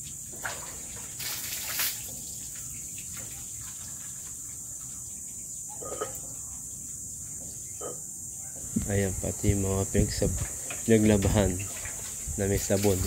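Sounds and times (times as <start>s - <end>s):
water splashing onto dog: 0.0s - 4.6s, 10.8s - 13.0s
insects droning: 0.0s - 13.0s.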